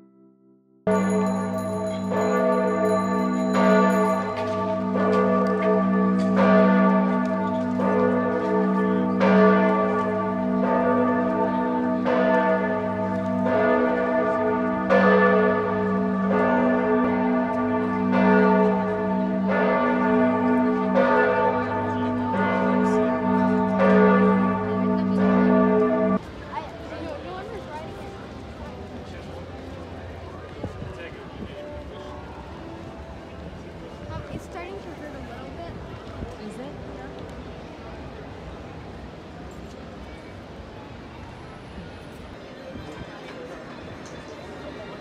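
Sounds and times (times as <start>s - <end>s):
church bells pealing: 0.0s - 35.6s.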